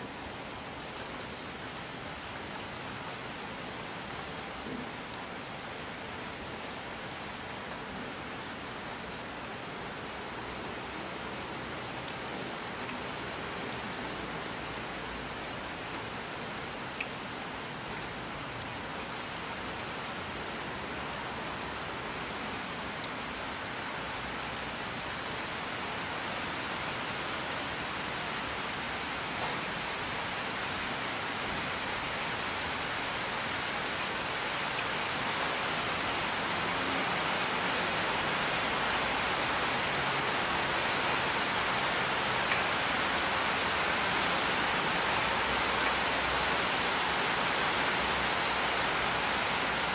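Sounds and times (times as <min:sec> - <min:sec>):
heavy rain: 0:00.0 - 0:49.9.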